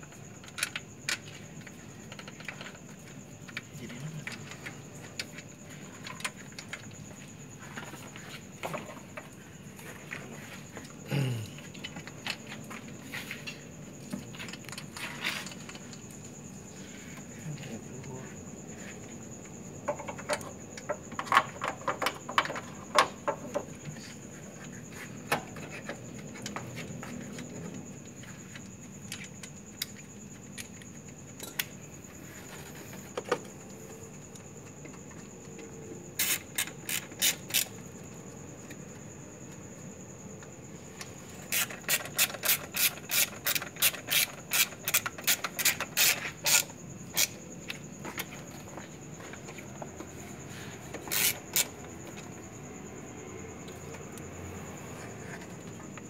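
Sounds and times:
hand tool scraping and clicking: 36.2s - 37.8s, 41.4s - 48.3s, 50.9s - 51.8s.

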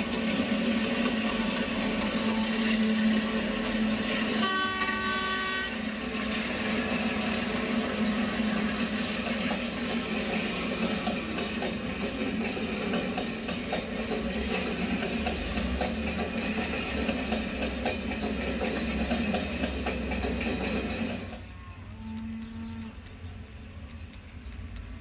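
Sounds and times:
model train engine hum: 0.0s - 25.0s
train horn: 2.2s - 3.0s, 4.3s - 5.9s, 21.6s - 23.0s.

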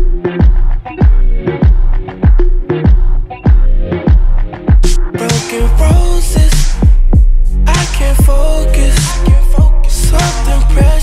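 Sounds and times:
deep kick drums: 0.0s - 5.1s, 5.9s - 7.5s, 8.2s - 8.5s, 9.3s - 9.8s, 10.8s - 11.0s.

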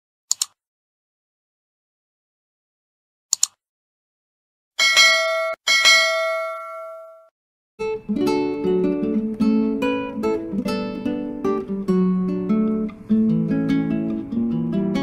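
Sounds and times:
double mouse click: 0.3s - 0.6s, 3.3s - 3.6s
notification bell chime: 4.8s - 7.3s.

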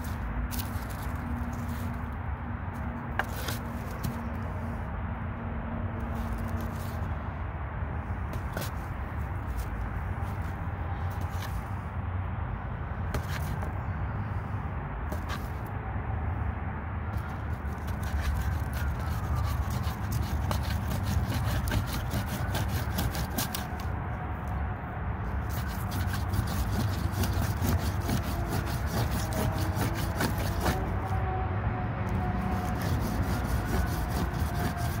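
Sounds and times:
wood-on-wood scraping strokes: 0.0s - 2.1s, 2.8s - 4.8s, 6.0s - 7.1s, 8.3s - 11.8s, 13.1s - 13.8s, 15.1s - 15.7s, 17.1s - 24.6s, 25.3s - 31.4s, 32.0s - 35.0s.

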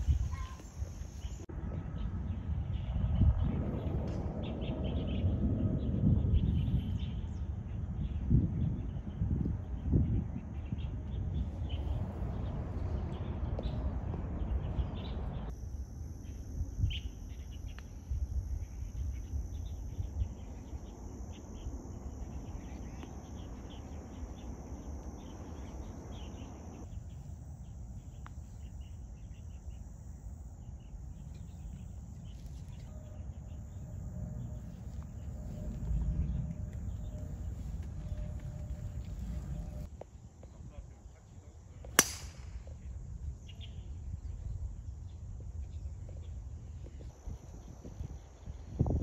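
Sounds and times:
high-pitched insect drone: 0.0s - 1.5s, 15.5s - 39.9s
wind rumble on microphone: 0.0s - 49.0s.

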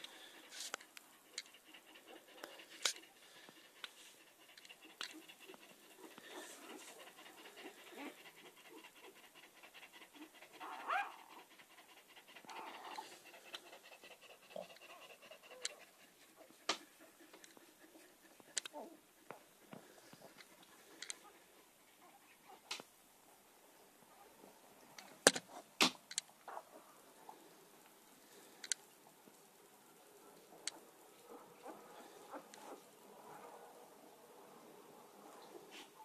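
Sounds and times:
dog panting: 0.0s - 23.5s.

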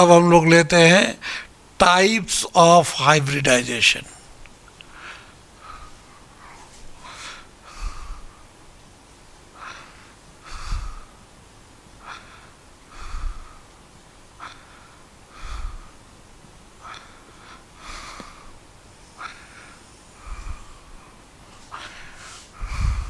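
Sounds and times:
man breathing close to microphone: 4.2s - 8.6s, 9.5s - 11.2s, 12.0s - 16.2s, 16.8s - 23.0s.

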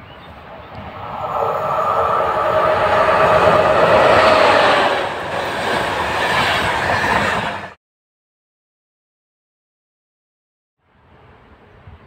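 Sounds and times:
train wheels rushing on rails: 0.4s - 7.8s.

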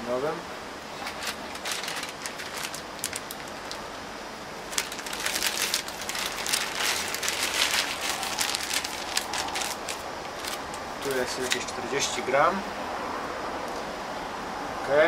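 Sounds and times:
cloth bag crackling and rustling: 0.9s - 3.8s, 4.7s - 11.8s.

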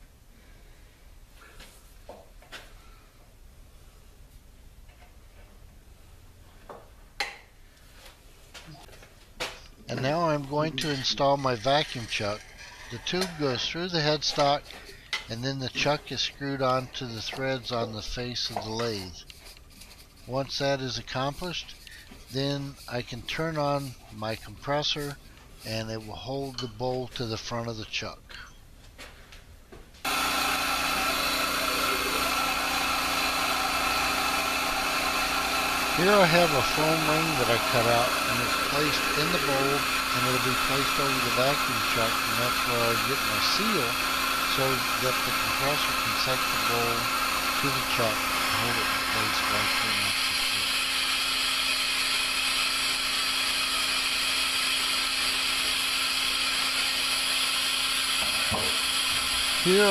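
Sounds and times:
air compressor running: 10.0s - 15.2s, 30.0s - 59.9s.

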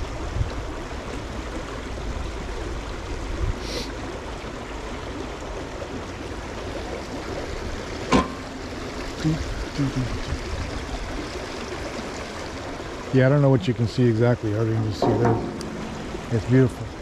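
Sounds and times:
brook rushing: 12.9s - 17.0s.

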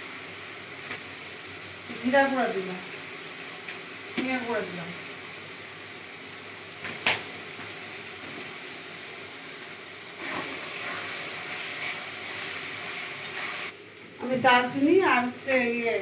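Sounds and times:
masala sizzling in a pan: 0.0s - 16.0s.

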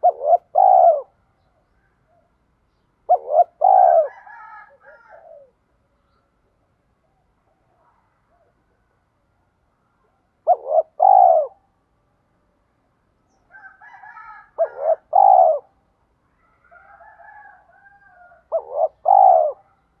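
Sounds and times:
dove cooing: 0.0s - 1.2s, 3.1s - 5.6s, 10.4s - 11.6s, 13.6s - 15.8s, 16.6s - 19.8s
faint warbling bird calls: 0.0s - 6.4s, 9.8s - 11.7s, 14.5s - 16.7s, 18.2s - 20.0s.

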